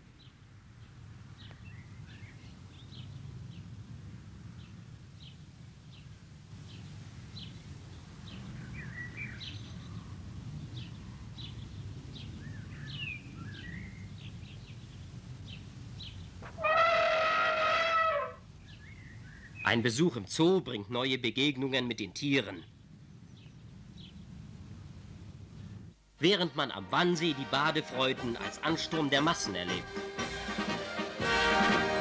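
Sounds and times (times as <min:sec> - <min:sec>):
low background rumble: 0:00.0 - 0:26.8
birds chirping: 0:04.6 - 0:24.6.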